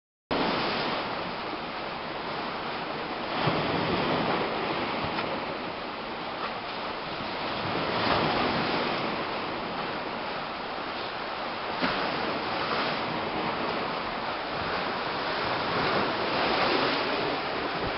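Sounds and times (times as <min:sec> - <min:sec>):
waves breaking on beach: 0:00.3 - 0:17.9.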